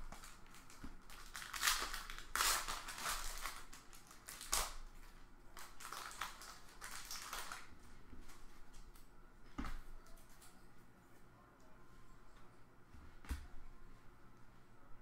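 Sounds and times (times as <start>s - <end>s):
foil wrapper tearing and crinkling: 0.0s - 4.8s, 5.6s - 7.7s.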